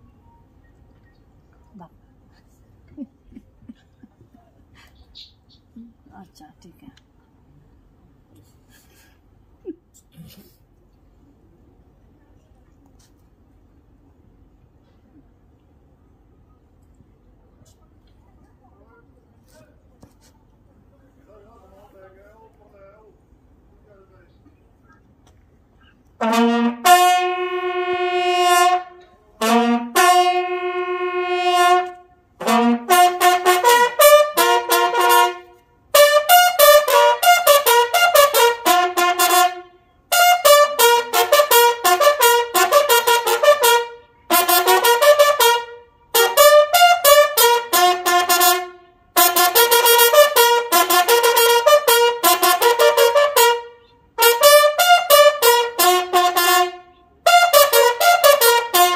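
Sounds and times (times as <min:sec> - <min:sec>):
solo bugle call: 0:26.2 - 0:58.9.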